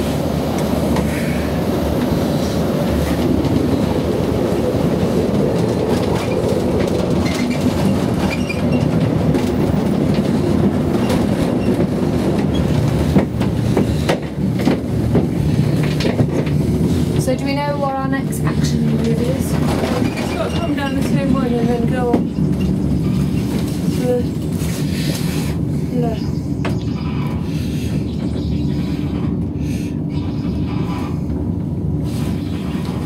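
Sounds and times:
gondola cabin rumble and clatter: 0.0 - 33.0.

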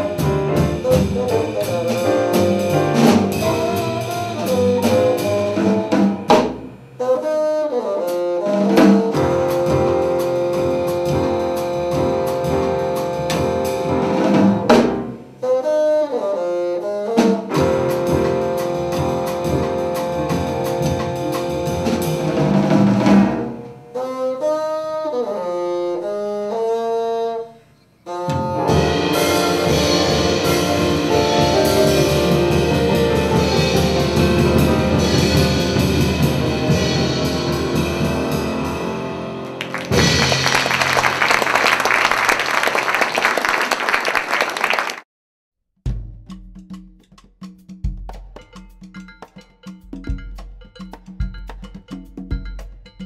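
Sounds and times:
solo bassoon phrase: 0.0 - 6.2
jazz quartet playing: 0.0 - 42.2
audience applause: 39.6 - 45.0.

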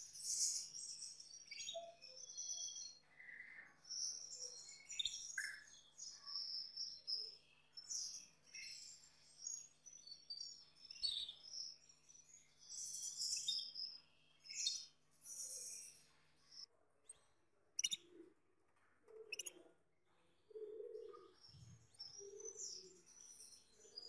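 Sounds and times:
canary singing: 17.8 - 18.0, 19.2 - 19.6.

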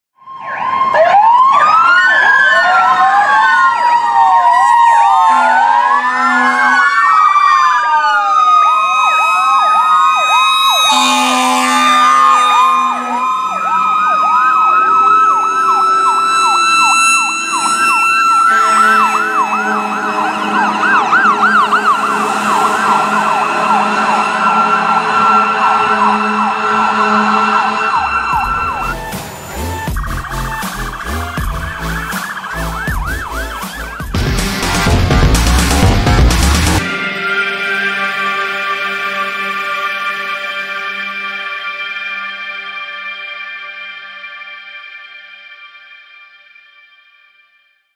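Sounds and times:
sirens wailing and yelping: 0.2 - 43.9
air horn blasts: 5.1 - 7.0, 8.9 - 31.8, 33.4 - 42.8.

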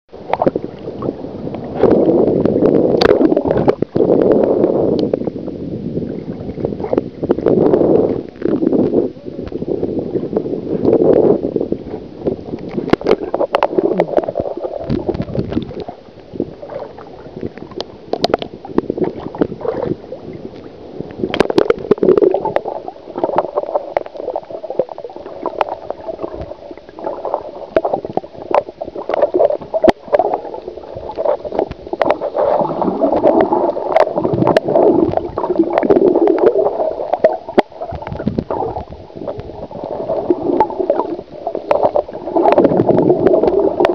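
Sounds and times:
muffled underwater gurgling: 0.1 - 43.9.

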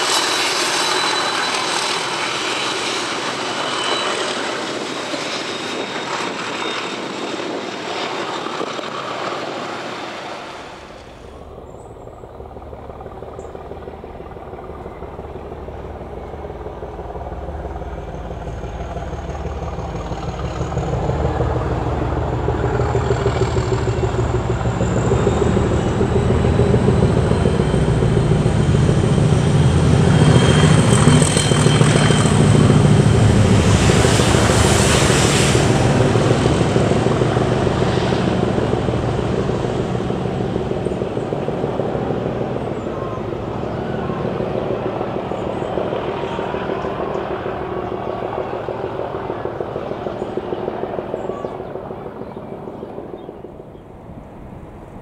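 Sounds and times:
train wheel and wagon noise: 0.0 - 55.0
diesel locomotive engine throb: 10.7 - 51.9.

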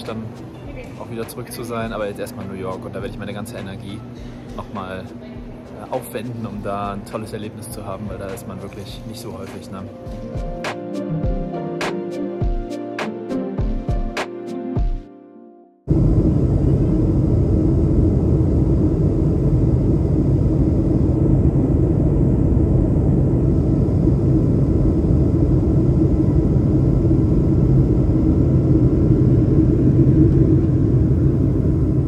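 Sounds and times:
jet airliner cabin rumble: 15.9 - 32.0.

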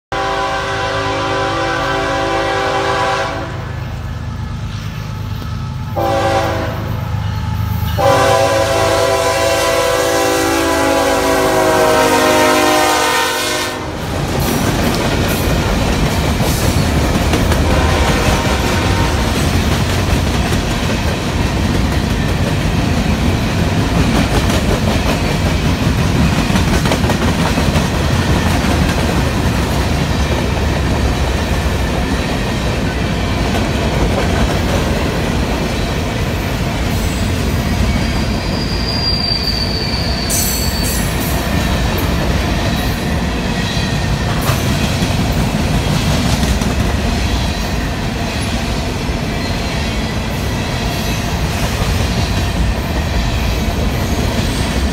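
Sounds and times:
train wheels rumbling on rails: 0.1 - 54.9
high wheel squeal: 37.0 - 41.4.

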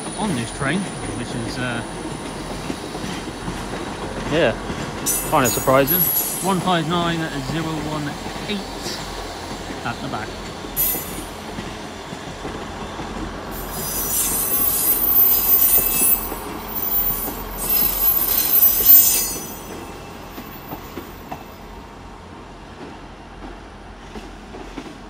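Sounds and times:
low rumble of moving train: 0.0 - 25.0
train wheels squealing: 5.1 - 7.8, 9.9 - 11.4, 13.5 - 21.5.

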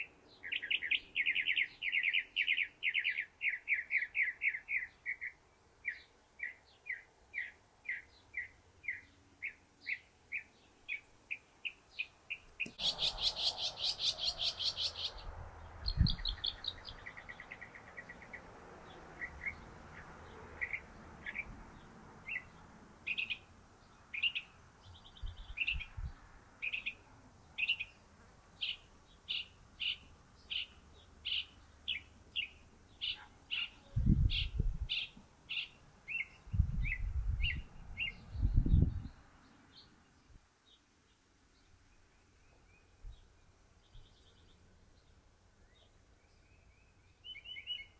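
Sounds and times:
mockingbird singing: 0.0 - 18.5, 19.1 - 21.5, 22.2 - 23.5, 24.1 - 26.0, 26.6 - 27.0, 28.6 - 39.1, 45.6 - 47.9.

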